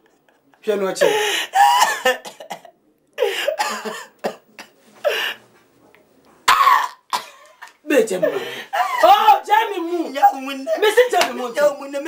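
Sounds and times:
man coughing: 1.6 - 5.3.

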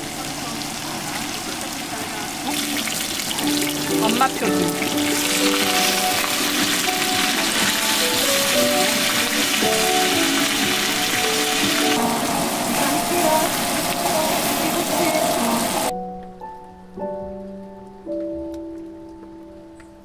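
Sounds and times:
food sizzling on griddle pan: 0.0 - 15.9
music of held notes: 0.0 - 20.0.

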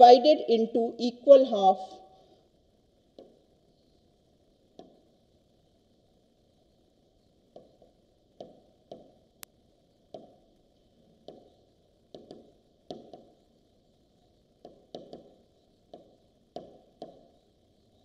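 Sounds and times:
low background hum: 0.0 - 18.0
stylus tapping on a screen: 3.1 - 3.4, 4.7 - 5.1, 7.5 - 9.2, 10.1 - 10.4, 11.2 - 11.5, 12.1 - 13.4, 14.6 - 17.4.

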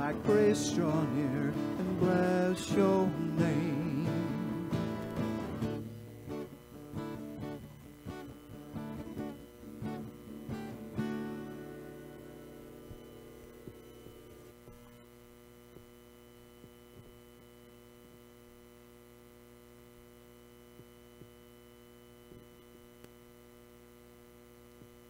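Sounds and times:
guitar chord: 0.0 - 14.5
electrical mains hum: 0.0 - 25.0.

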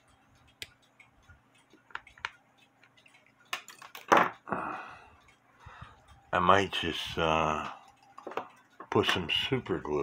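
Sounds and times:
small metal parts clicking: 1.9 - 4.5.

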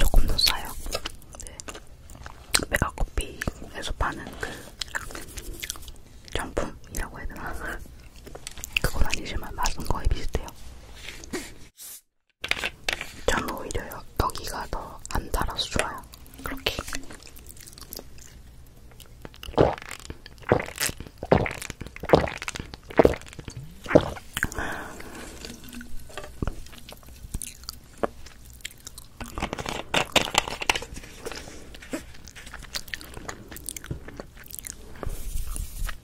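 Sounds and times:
plastic bottle crackling and clicking: 29.2 - 32.9.

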